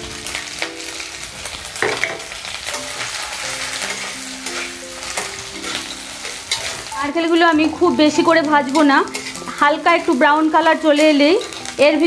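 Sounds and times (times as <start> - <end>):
food sizzling in hot oil: 0.0 - 12.0
metal spatula scraping pan: 1.8 - 10.2, 11.0 - 11.8.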